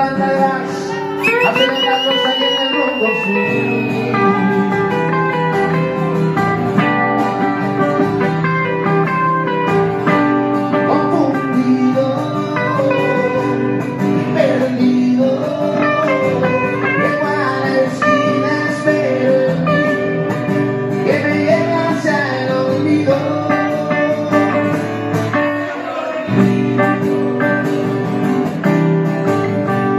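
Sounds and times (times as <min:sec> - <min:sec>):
person singing: 0:00.0 - 0:06.1, 0:10.8 - 0:20.3, 0:21.0 - 0:24.7
acoustic guitar playing: 0:00.0 - 0:29.9.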